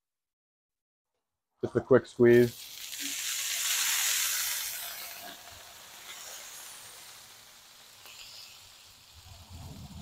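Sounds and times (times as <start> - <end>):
juice sizzling on hot griddle: 2.2 - 10.0.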